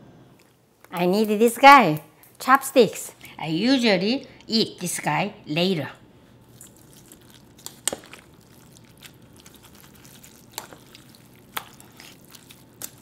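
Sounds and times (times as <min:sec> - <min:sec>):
wet squishing of noodles: 0:06.4 - 0:13.0.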